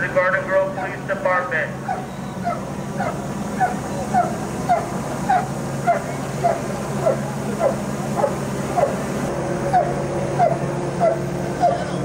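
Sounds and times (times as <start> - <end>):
steady low hum: 0.0 - 12.0
dog barking: 1.9 - 9.0, 9.8 - 11.8.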